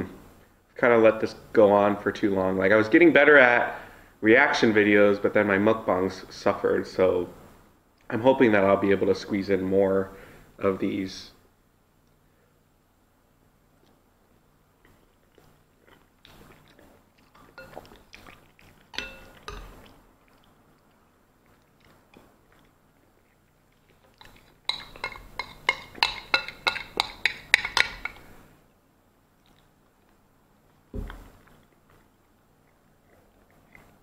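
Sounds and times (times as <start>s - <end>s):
chewing: 13.8s - 28.4s, 29.4s - 34.0s
metal spoon scraping ceramic bowl: 17.6s - 17.9s, 18.9s - 19.8s, 24.2s - 28.2s.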